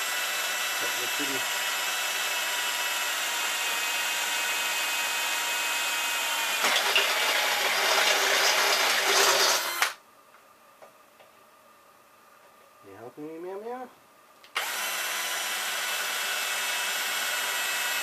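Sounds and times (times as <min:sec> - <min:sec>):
cordless drill driving bolt: 0:06.2 - 0:10.0, 0:14.5 - 0:18.0.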